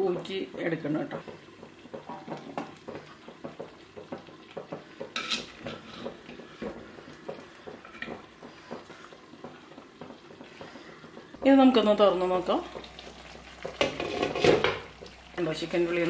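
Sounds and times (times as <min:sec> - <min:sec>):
metal ladle scraping clay pot: 0:05.1 - 0:06.3, 0:13.8 - 0:14.7.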